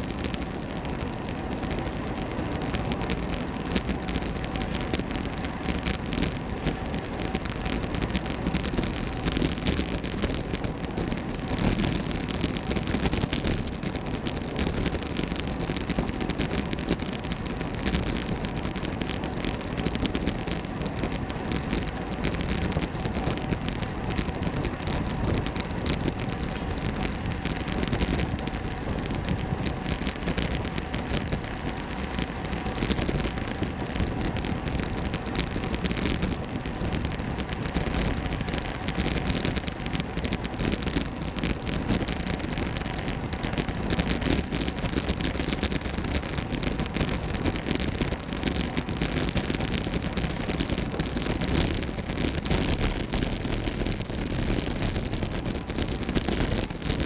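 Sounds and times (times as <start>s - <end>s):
wind rushing over microphone: 0.0s - 57.0s
tyre hiss on road: 26.4s - 36.3s.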